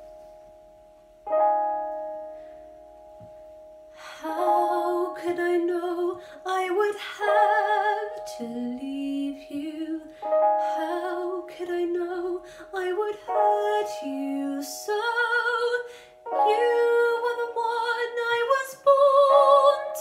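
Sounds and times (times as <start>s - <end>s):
piano accompaniment: 0.0s - 20.0s
woman singing a ballad: 4.0s - 20.0s.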